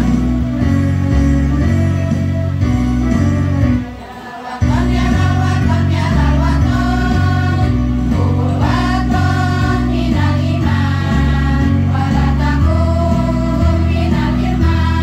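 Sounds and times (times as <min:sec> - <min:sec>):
music with rhythmic bass line: 0:00.0 - 0:04.0, 0:04.6 - 0:15.0
women's choir singing: 0:03.9 - 0:15.0.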